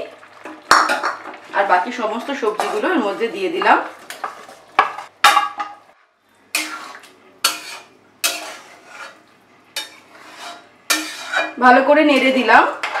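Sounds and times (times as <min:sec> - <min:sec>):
metal spatula scraping pan: 0:02.4 - 0:05.1, 0:06.5 - 0:11.6.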